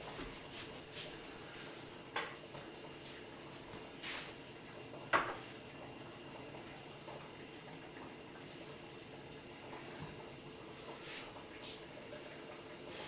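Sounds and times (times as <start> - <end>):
dishes clattering on countertop: 5.1 - 5.5.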